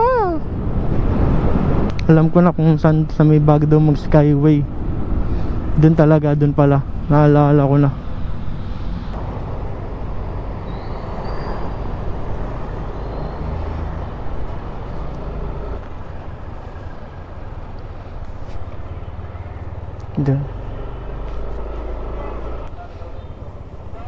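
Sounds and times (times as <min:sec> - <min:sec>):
road noise: 0:00.0 - 0:24.0
motorcycle engine hum: 0:08.0 - 0:24.0.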